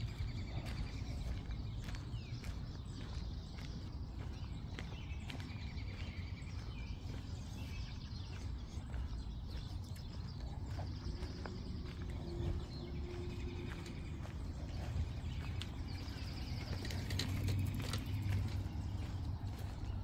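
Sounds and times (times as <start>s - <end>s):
birds chirping: 0.0s - 20.0s
footsteps on path: 0.0s - 20.0s
low outdoor rumble: 0.0s - 20.0s.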